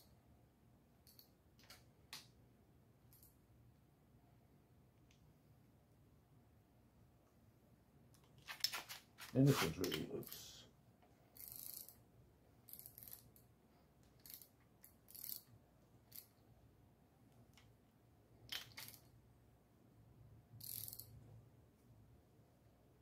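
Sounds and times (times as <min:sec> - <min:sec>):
ratchet wrench clicks: 0:11.4 - 0:12.0, 0:12.7 - 0:13.4, 0:14.2 - 0:14.5, 0:15.1 - 0:15.5, 0:16.1 - 0:16.3, 0:20.6 - 0:21.1.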